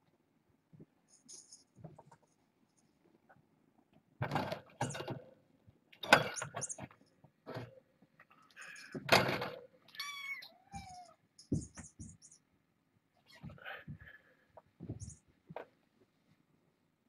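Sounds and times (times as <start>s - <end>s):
kittens thumping and scuffling: 13.3s - 15.8s.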